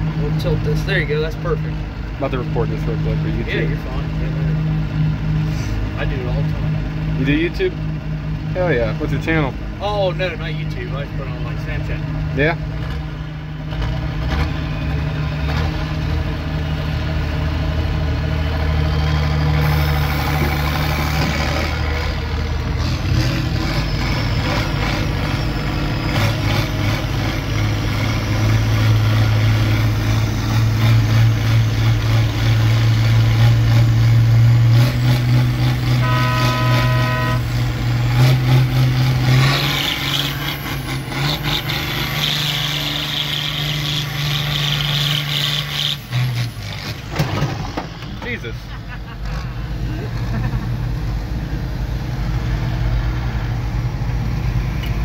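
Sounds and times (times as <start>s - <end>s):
tractor engine running: 0.0s - 55.0s
short horn-like beep: 36.0s - 37.6s.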